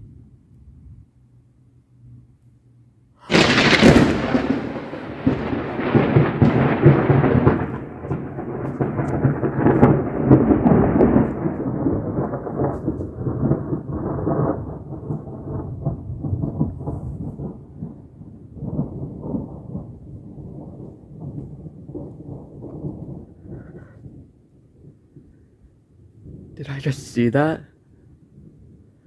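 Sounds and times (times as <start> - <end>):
thunder crack: 3.2 - 24.3
rolling thunder rumble: 3.2 - 25.4, 26.1 - 29.0.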